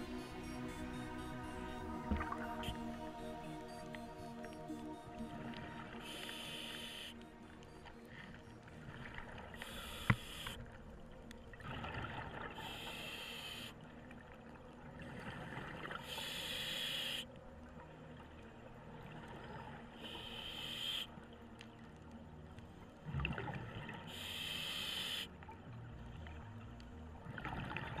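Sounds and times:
scuba regulator breathing: 9.6 - 10.6, 24.1 - 25.3.

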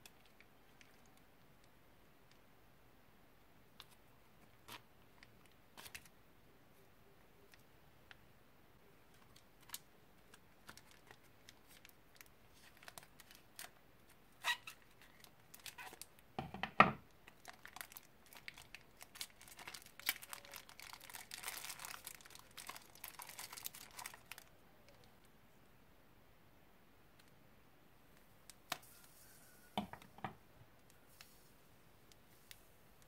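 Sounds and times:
plastic bag crinkling and rustling: 9.1 - 13.8, 14.4 - 16.1, 17.2 - 25.1.

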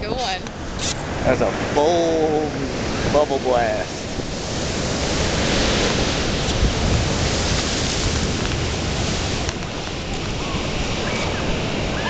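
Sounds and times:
ocean surf roaring: 0.0 - 12.0
wind rumbling on microphone: 0.0 - 12.0.

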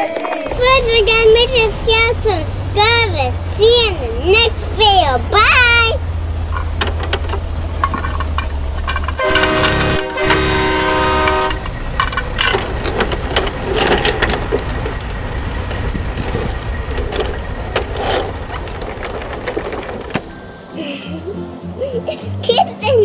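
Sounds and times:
low rumble: 0.5 - 20.7
plastic toys clattering: 5.8 - 20.7
horn blasts: 9.1 - 12.0.

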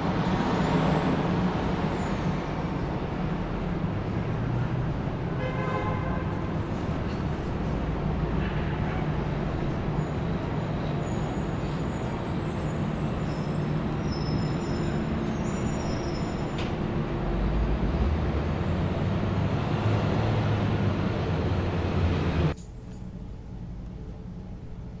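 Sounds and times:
city traffic rumble: 0.0 - 25.0
large vehicle passing: 16.4 - 22.6.

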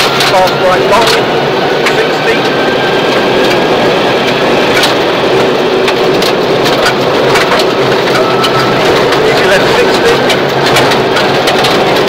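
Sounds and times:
car engine droning: 0.0 - 12.0.

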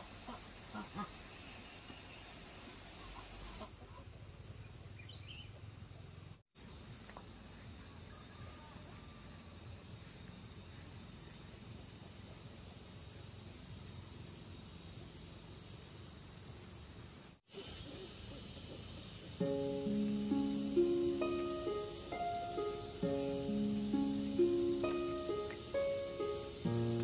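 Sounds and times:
faint outdoor background noise: 0.0 - 27.0
insect trilling: 17.5 - 27.0.

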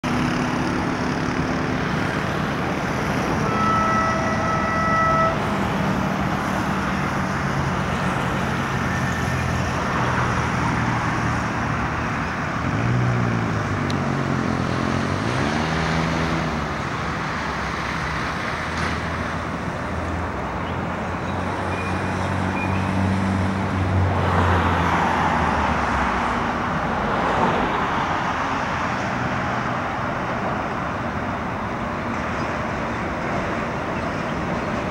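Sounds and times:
cars and motorbikes passing: 0.0 - 34.9
car horn steady note: 3.4 - 5.4.

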